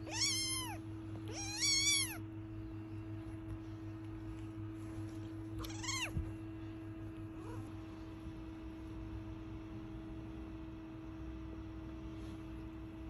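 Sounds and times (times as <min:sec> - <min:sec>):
kitten meowing: 0:00.0 - 0:02.2, 0:05.6 - 0:06.2.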